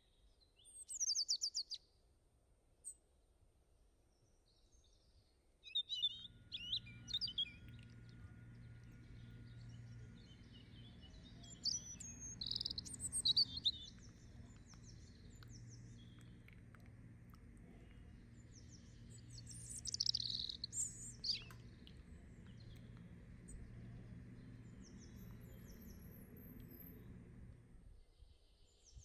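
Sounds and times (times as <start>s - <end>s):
small birds chirping: 0.5s - 1.8s, 5.6s - 27.6s
faint low hum: 3.8s - 29.0s.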